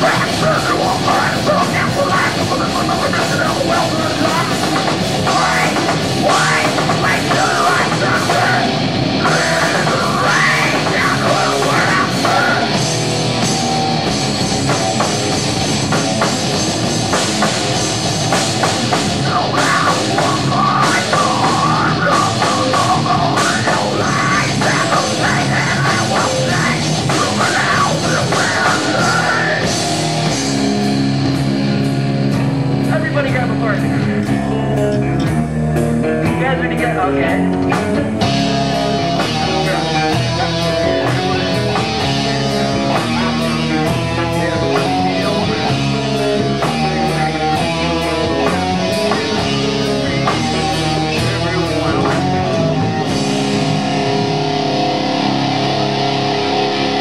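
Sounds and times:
person singing: 0:00.0 - 0:13.0, 0:19.2 - 0:29.9, 0:36.3 - 0:57.0
bass guitar: 0:00.0 - 0:57.0
drum kit: 0:00.0 - 0:57.0
electric guitars: 0:00.0 - 0:57.0.

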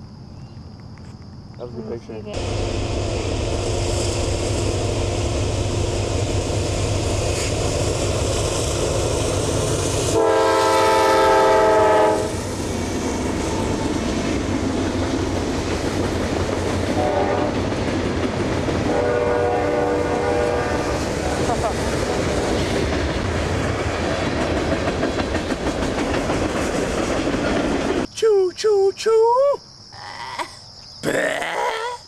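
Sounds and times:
freight train rumbling: 0:01.7 - 0:28.1
train horn: 0:10.1 - 0:12.5, 0:16.9 - 0:17.6, 0:18.8 - 0:21.1.

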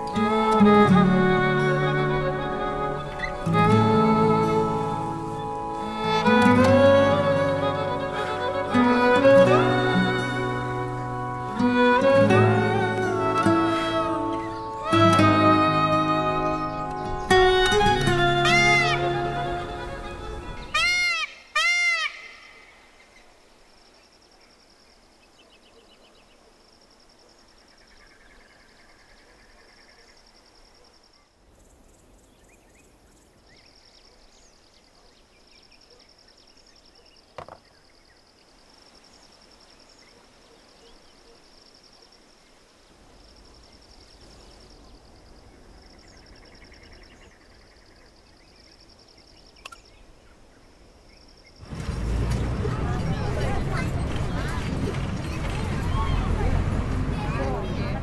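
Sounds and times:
insects trilling: 0:00.0 - 0:51.8
short bird calls: 0:20.4 - 0:23.3.

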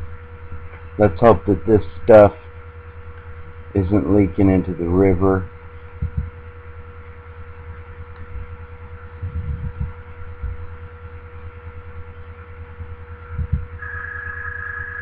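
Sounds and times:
low electrical hum: 0:00.0 - 0:15.0
soft low thumps: 0:06.0 - 0:06.4, 0:08.2 - 0:10.9, 0:13.3 - 0:13.8.

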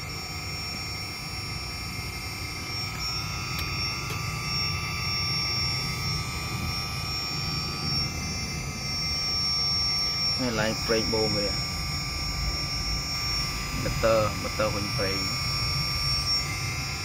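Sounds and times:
hydraulic pump humming: 0:00.0 - 0:17.0
thin steady whine: 0:00.0 - 0:17.0.

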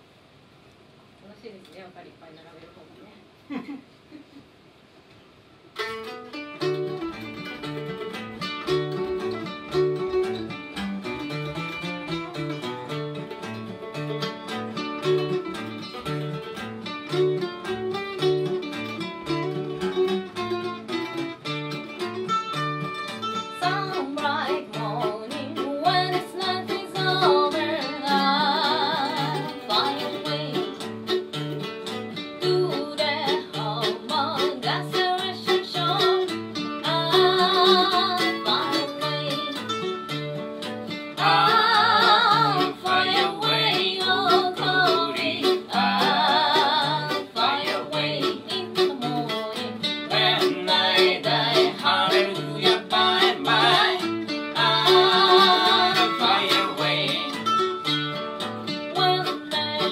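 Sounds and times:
mandolin picking: 0:05.6 - 0:59.9
acoustic guitar strumming: 0:05.7 - 0:59.9
woman singing: 0:23.5 - 0:30.9, 0:32.2 - 0:39.8, 0:41.2 - 0:57.5, 0:58.8 - 0:59.9.

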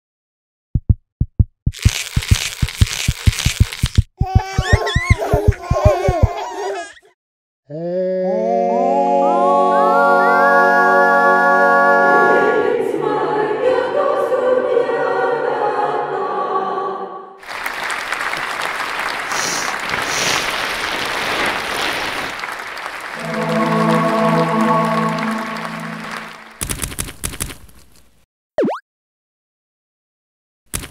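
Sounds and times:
choir singing in harmony: 0:08.5 - 0:17.4, 0:23.2 - 0:26.6
audience applauding: 0:17.4 - 0:26.8.

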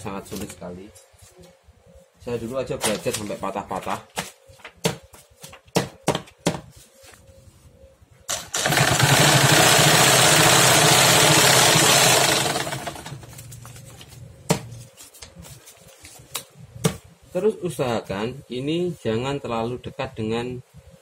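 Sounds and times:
sewing machine running fast: 0:08.3 - 0:13.2.

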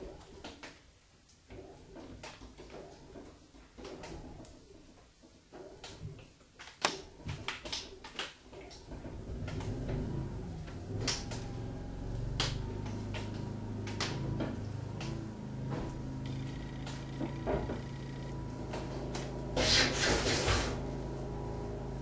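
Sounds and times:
generator engine running: 0:08.9 - 0:22.0.

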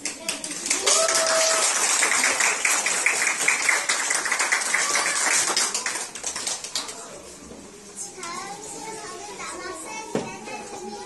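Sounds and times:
children applauding: 0:00.0 - 0:07.2.

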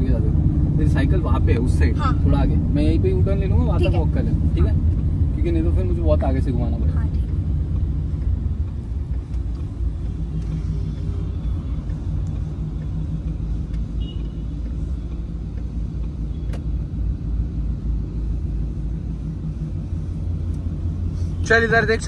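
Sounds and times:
car engine deep rumble: 0:00.0 - 0:22.0
road noise: 0:00.0 - 0:22.0.

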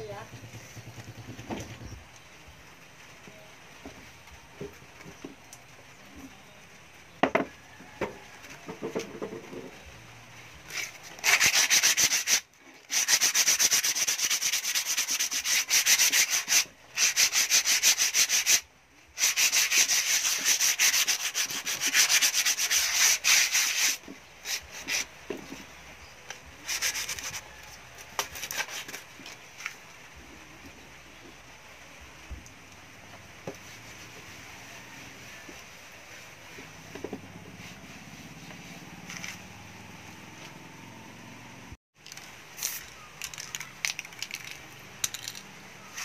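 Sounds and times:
sandpaper rubbing rusty metal grille: 0:10.6 - 0:25.6, 0:26.6 - 0:29.6.

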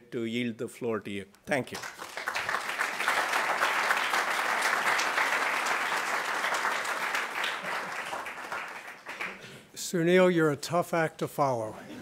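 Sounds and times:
audience applauding: 0:01.7 - 0:09.5.

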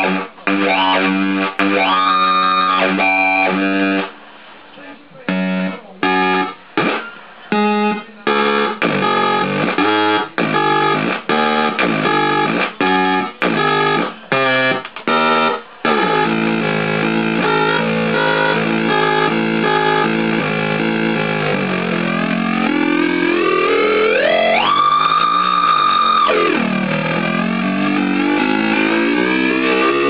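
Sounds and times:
distorted synthesizer tones: 0:00.0 - 0:30.0.

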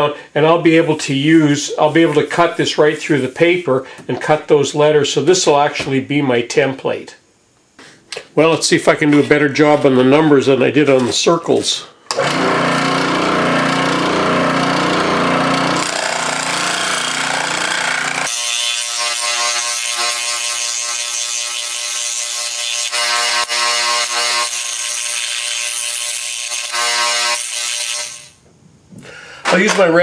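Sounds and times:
scroll saw cutting plywood: 0:12.1 - 0:28.4.

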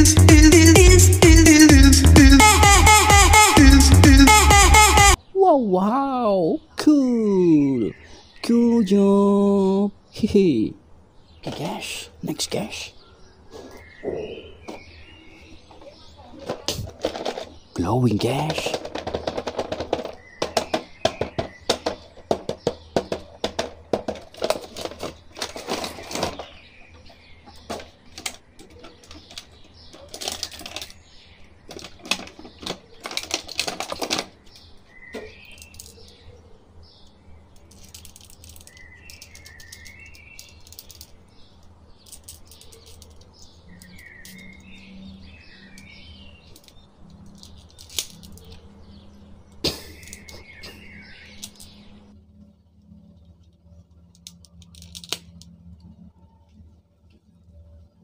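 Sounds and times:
birds chirping: 0:00.0 - 0:58.0
plastic packaging rustling: 0:18.6 - 0:26.6, 0:27.6 - 0:31.0, 0:31.7 - 0:34.5.

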